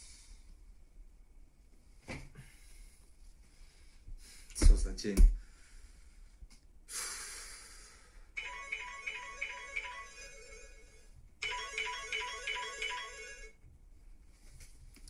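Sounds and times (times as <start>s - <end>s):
mobile phone ringtone melody: 8.4s - 13.6s.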